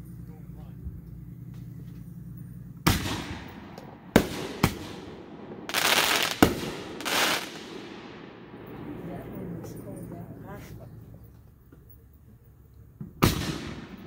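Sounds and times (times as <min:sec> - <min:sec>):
firework shells bursting: 0:02.8 - 0:09.8, 0:13.0 - 0:14.0
firework hiss: 0:04.1 - 0:08.2.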